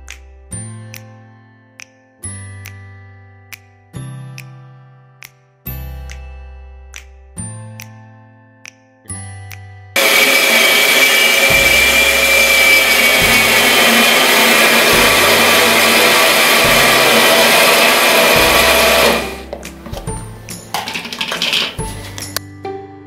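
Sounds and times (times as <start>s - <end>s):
electric blender running: 10.0s - 19.5s.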